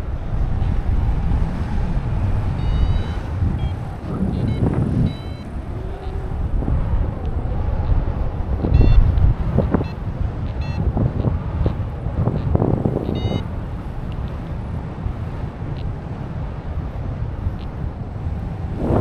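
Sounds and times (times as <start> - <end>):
wind buffeting microphone: 0.0 - 19.0
short high beeps: 2.6 - 6.2, 8.7 - 10.8, 12.4 - 13.5.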